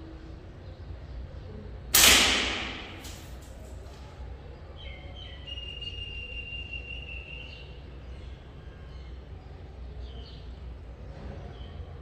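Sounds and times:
steady low hum: 0:00.0 - 0:04.8.

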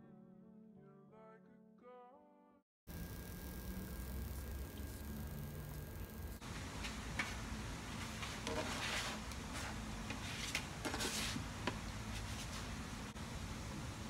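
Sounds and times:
spatula scraping grill plate: 0:08.0 - 0:11.4.

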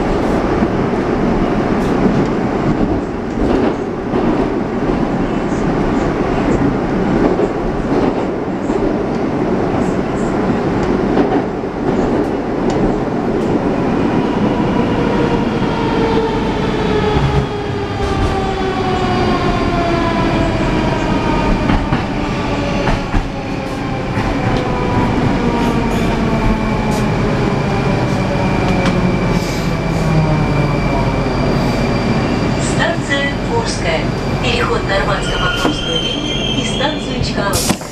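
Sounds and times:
train braking: 0:14.3 - 0:37.9.

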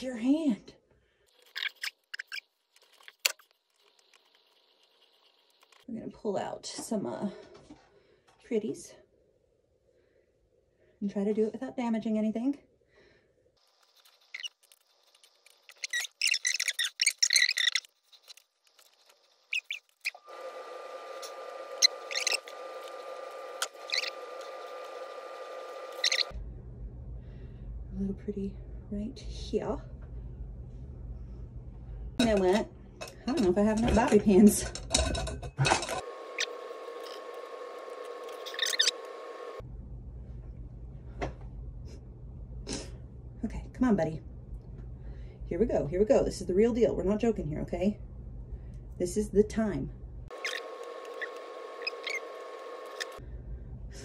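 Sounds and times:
hair rustling: 0:13.6 - 0:20.5
faint steady hum: 0:20.3 - 0:54.0.

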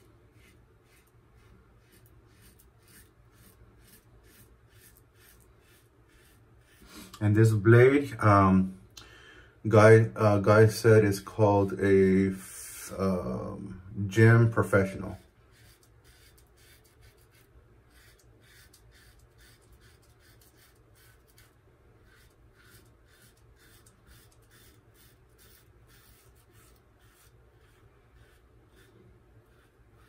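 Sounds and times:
razor scraping stubble: 0:00.0 - 0:08.0, 0:14.1 - 0:30.0.

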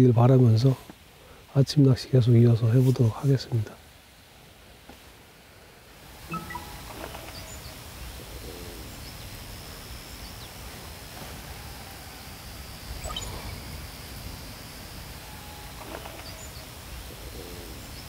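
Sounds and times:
birds calling: 0:06.1 - 0:18.0.

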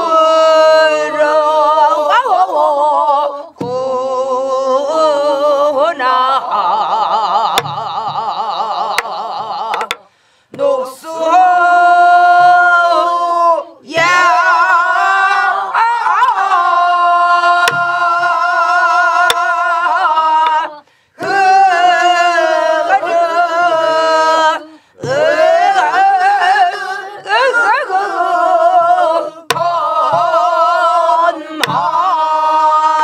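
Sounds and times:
group singing folk song with vibrato: 0:00.0 - 0:33.0
barrel drum beats: 0:07.5 - 0:10.6, 0:13.9 - 0:15.5, 0:17.5 - 0:22.1, 0:25.0 - 0:26.5, 0:29.4 - 0:32.2.

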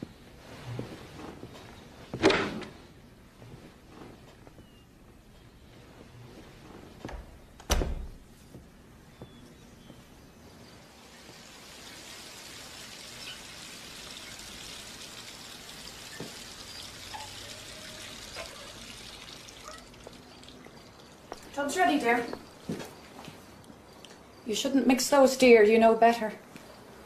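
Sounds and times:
steady hiss: 0:00.0 - 0:25.8
door shutting thud: 0:07.1 - 0:08.2.

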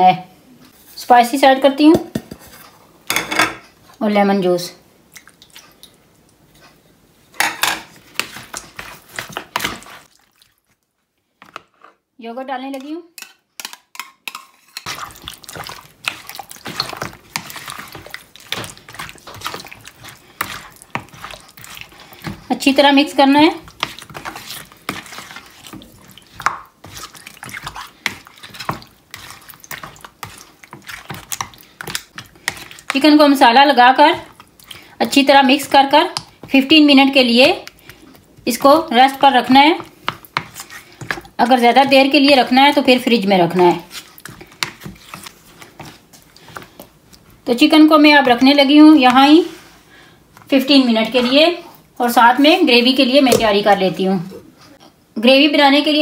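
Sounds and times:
spatula scraping plastic bowl: 0:07.6 - 0:10.1, 0:12.7 - 0:46.9, 0:50.4 - 0:53.8.

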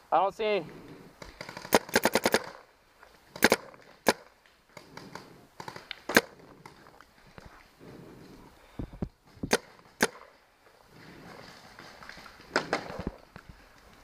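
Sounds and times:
paintball marker firing: 0:01.2 - 0:02.7, 0:03.3 - 0:06.8, 0:09.4 - 0:10.3.

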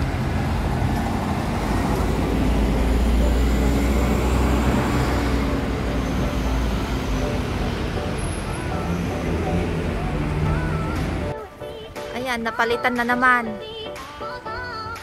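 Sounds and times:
hiss of passing cars: 0:00.0 - 0:11.3
bus engine rumble: 0:00.0 - 0:11.4.

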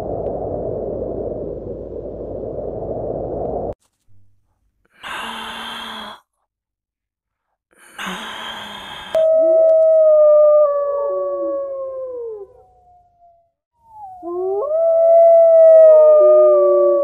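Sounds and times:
breathy sighs: 0:04.9 - 0:06.3, 0:07.8 - 0:09.3.

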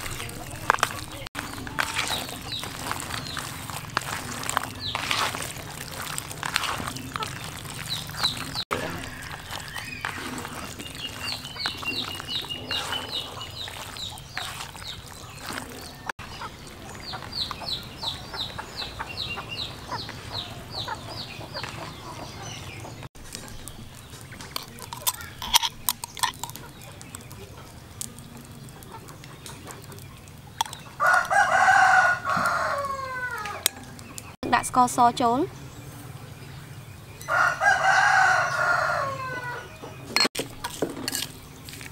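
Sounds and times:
hands mixing raw meat: 0:00.0 - 0:20.8, 0:23.2 - 0:35.0, 0:40.3 - 0:41.9
rooster crowing: 0:08.7 - 0:11.2, 0:31.0 - 0:33.9, 0:37.2 - 0:39.9.

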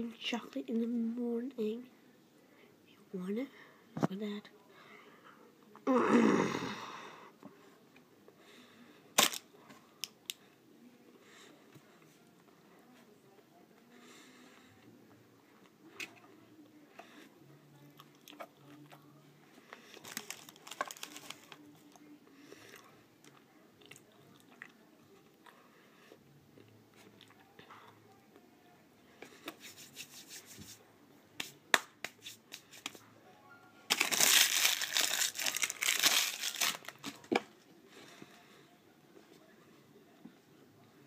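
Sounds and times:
crinkling: 0:09.2 - 0:09.5, 0:19.8 - 0:21.7, 0:33.9 - 0:37.5
biting and chewing pastry: 0:33.9 - 0:37.3.

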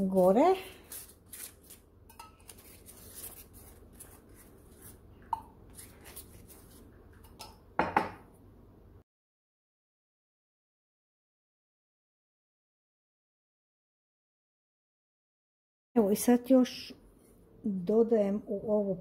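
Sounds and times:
pastry brush dabbing: 0:00.0 - 0:07.5
kitchenware clatter: 0:02.1 - 0:02.6, 0:07.2 - 0:08.3.

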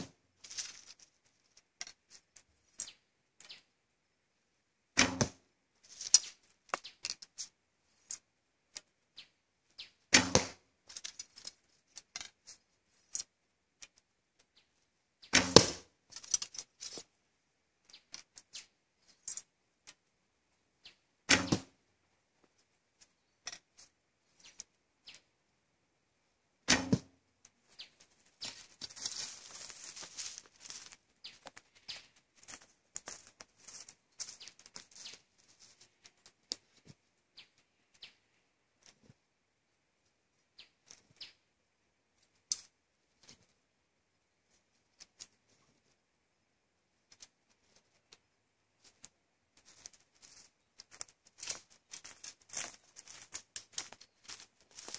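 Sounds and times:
footsteps crunching dry leaves: 0:00.4 - 0:01.0, 0:28.4 - 0:35.9, 0:49.7 - 0:54.9.

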